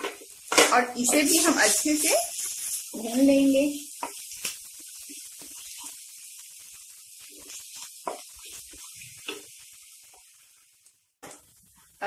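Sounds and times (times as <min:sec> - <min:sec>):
spatula scraping and knocking pan: 0:00.0 - 0:03.0, 0:03.9 - 0:04.4, 0:07.2 - 0:10.2
paste frying in hot oil: 0:00.0 - 0:12.0.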